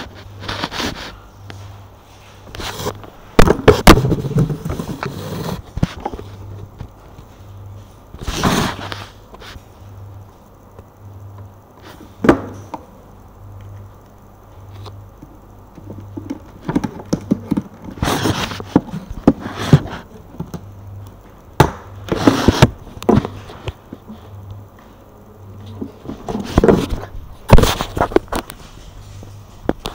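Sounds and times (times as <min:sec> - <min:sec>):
faint pulsing low hum: 0:00.0 - 0:29.9
rustling and knocking: 0:02.7 - 0:07.0.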